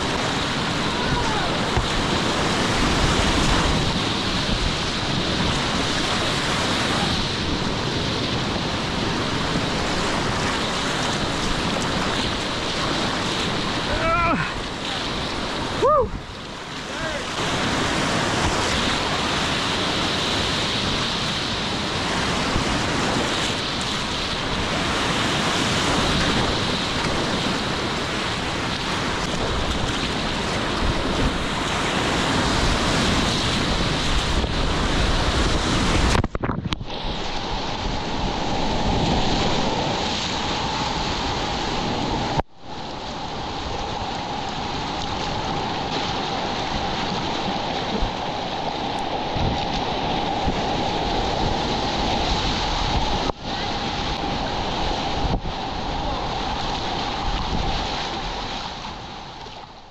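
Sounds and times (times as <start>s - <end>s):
whitewater rapids rushing: 0.0s - 36.3s, 36.9s - 59.6s
wind on the microphone: 0.0s - 59.9s.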